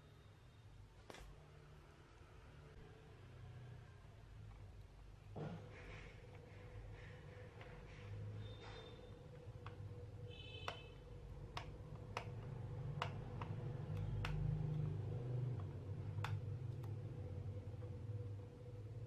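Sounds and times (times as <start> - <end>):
short squeak: 8.4 - 9.1
sharp plastic clicks: 9.3 - 17.0.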